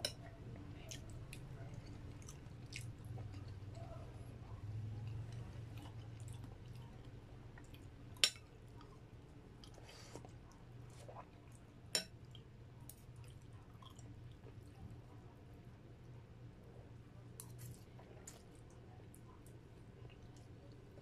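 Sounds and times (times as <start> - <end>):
chewing noodles: 0.6 - 11.6.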